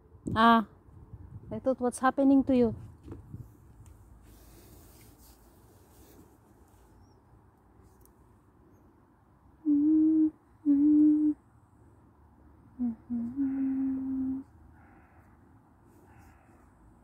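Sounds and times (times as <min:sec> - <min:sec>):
person humming a tune: 0:09.6 - 0:11.4, 0:12.7 - 0:14.5.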